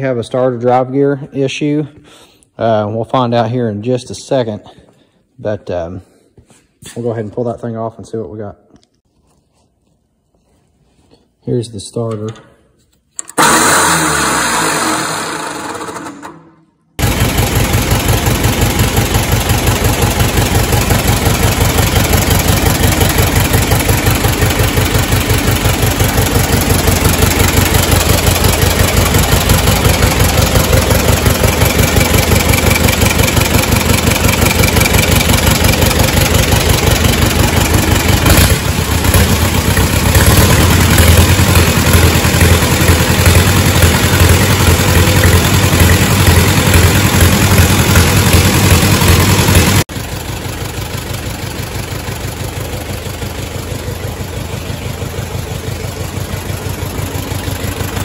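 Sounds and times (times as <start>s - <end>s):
tractor engine running: 13.2s - 58.0s.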